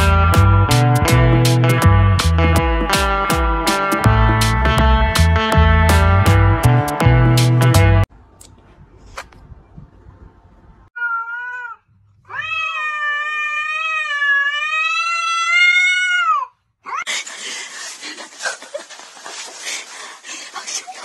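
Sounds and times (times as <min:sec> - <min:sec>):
cat yowling: 0:11.0 - 0:17.1.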